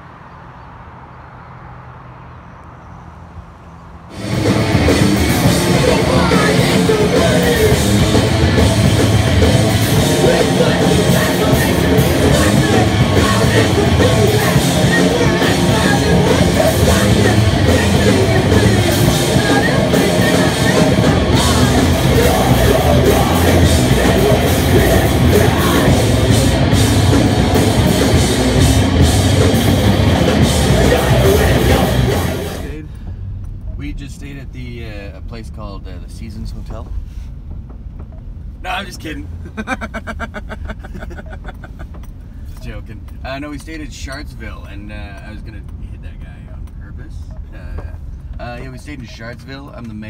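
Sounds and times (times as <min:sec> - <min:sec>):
heavy rock band playing live: 0:04.1 - 0:32.7.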